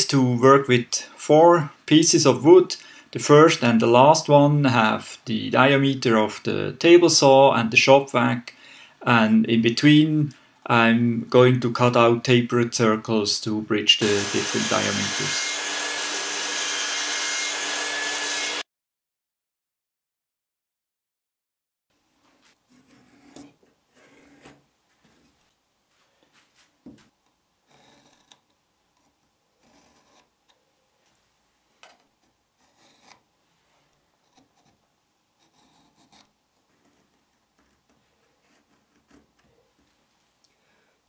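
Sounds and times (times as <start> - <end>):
pencil tracing: 27.7 - 30.3, 32.2 - 33.2, 34.2 - 34.8, 35.4 - 39.8.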